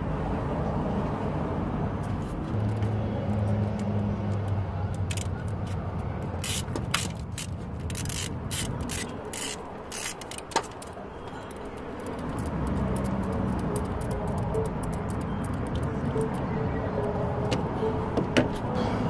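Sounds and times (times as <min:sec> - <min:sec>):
ratchet clicking on nuts: 0:05.0 - 0:05.6, 0:06.2 - 0:16.4.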